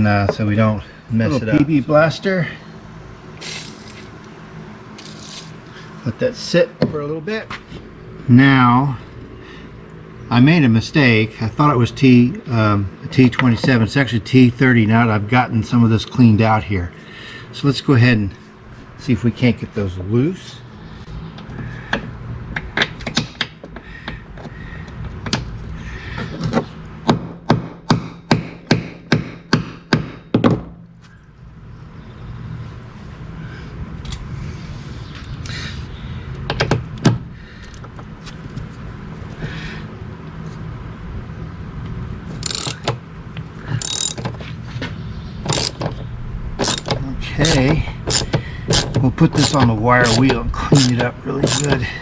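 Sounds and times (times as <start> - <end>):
socket ratchet clicking: 42.4 - 43.0, 43.8 - 44.3, 45.5 - 45.9, 46.6 - 51.8.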